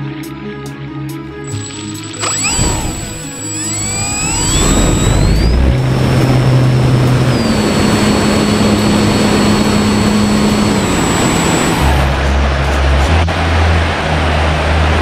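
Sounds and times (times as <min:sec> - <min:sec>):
electric motor whine: 0:01.5 - 0:12.2.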